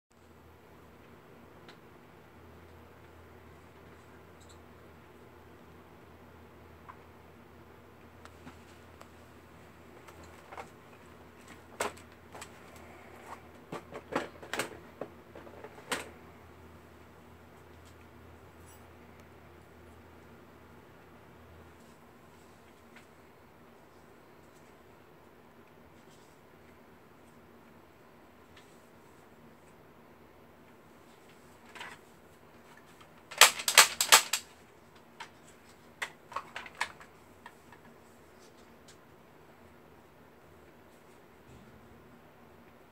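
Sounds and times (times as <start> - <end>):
plastic toy blaster clicking: 33.3 - 34.4.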